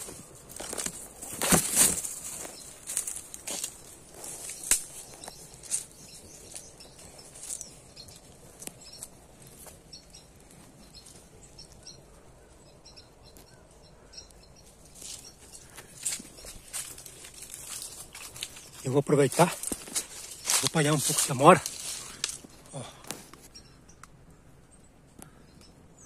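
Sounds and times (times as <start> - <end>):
footsteps rustling dry leaves: 0.0 - 11.8, 14.6 - 22.8
faint bird chirps: 2.4 - 19.2.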